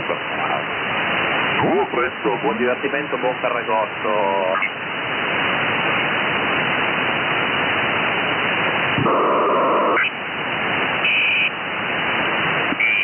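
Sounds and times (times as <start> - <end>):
radio receiver hiss: 0.0 - 13.0
loud steady tone with whistle: 11.0 - 11.6, 12.7 - 13.0.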